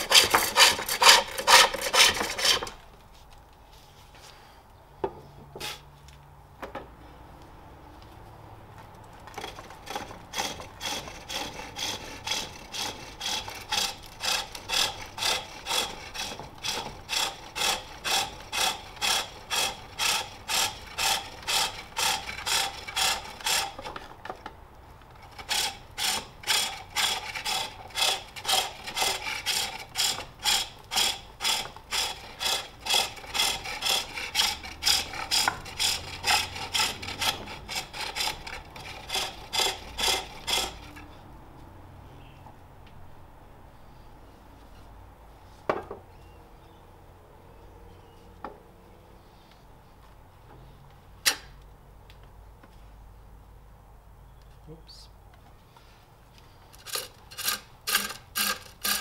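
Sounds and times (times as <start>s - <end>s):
lathe tool scraping wood: 0.0s - 2.8s, 9.3s - 24.0s, 25.2s - 41.1s, 56.7s - 59.0s.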